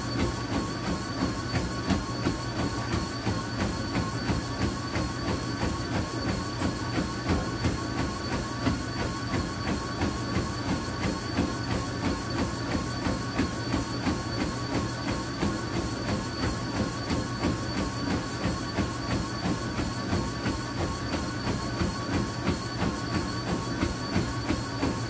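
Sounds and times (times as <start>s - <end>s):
treadmill motor whine and hum: 0.0s - 25.0s
footfalls on treadmill belt: 0.1s - 25.0s.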